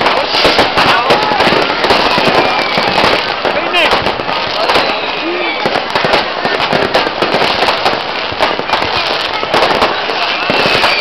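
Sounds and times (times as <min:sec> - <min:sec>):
firecrackers bangs and crackles: 0:00.0 - 0:11.0.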